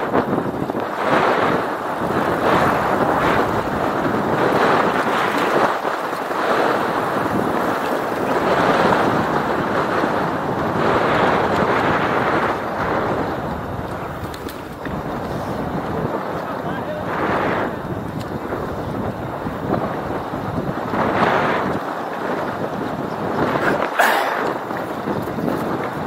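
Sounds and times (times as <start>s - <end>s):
wind rushing over microphone: 0.0s - 26.0s.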